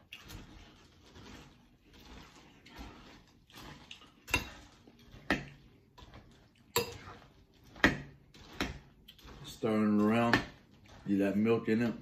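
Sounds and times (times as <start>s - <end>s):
chewing crunchy cereal: 0.0s - 12.0s.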